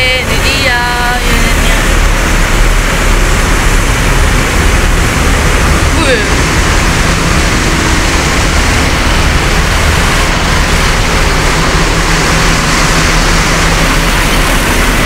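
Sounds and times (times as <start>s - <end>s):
bus diesel engines idling: 0.0s - 15.0s.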